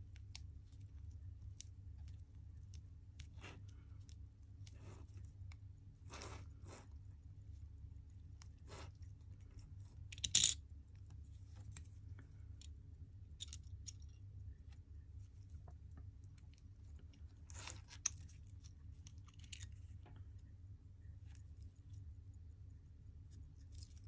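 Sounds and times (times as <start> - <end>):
low steady hum: 0.0 - 24.0
small metal clicks and clinks: 10.0 - 10.8, 12.5 - 14.3, 23.6 - 24.0.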